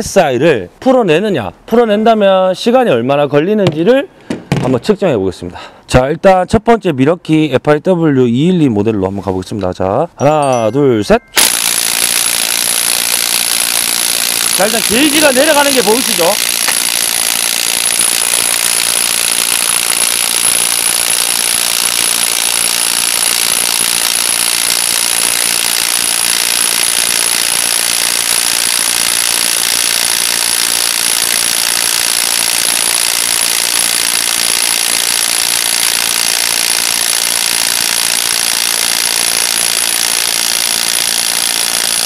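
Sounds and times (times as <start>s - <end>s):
impact wrench hammering: 3.6s - 4.8s, 11.4s - 42.0s.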